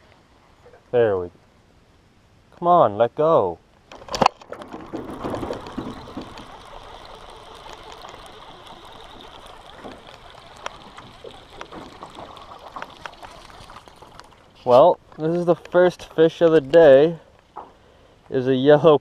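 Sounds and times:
water sloshing and splashing: 0:03.9 - 0:15.5.

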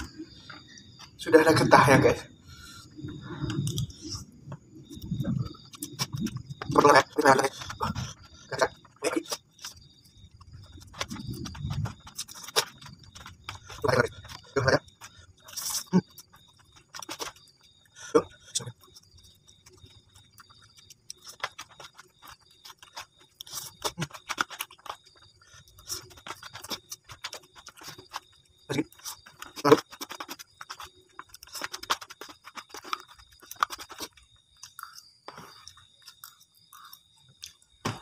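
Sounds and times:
noodles being slurped and chewed: 0:02.8 - 0:37.6.

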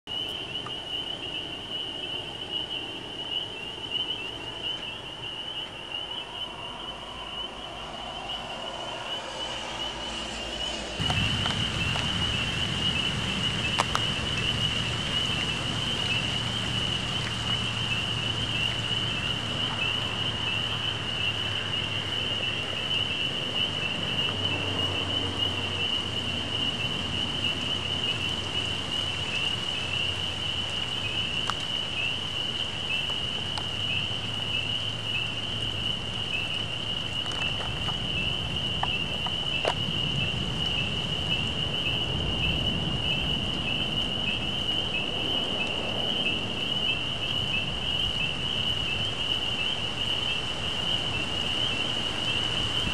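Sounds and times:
rain hissing: 0:00.1 - 0:52.9
water dripping: 0:08.2 - 0:40.8.

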